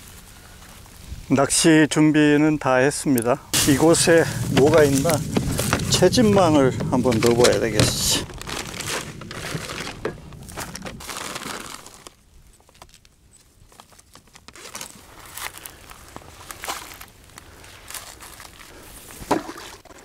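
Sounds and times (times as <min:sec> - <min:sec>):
net crinkling and rustling: 0:03.6 - 0:18.8.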